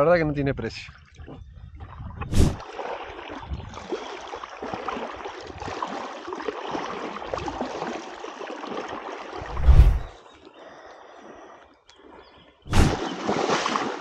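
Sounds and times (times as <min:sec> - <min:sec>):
wading through shallow water: 0:00.9 - 0:14.0.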